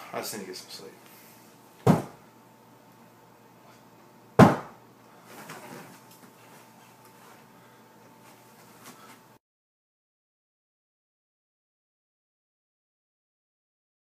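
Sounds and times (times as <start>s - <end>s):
sharp thump: 1.8s - 2.2s, 4.4s - 4.8s.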